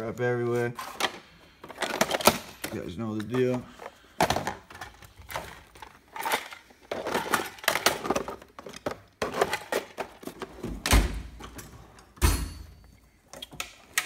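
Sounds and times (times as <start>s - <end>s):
plastic cases clattering in drawer: 0.8s - 10.6s.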